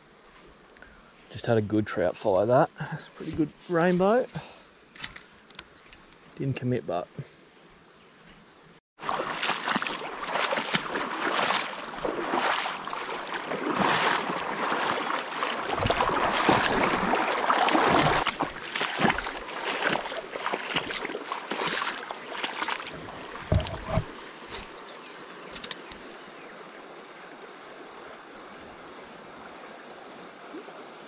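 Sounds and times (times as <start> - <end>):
wading through shallow water: 2.0 - 4.8, 9.0 - 31.0.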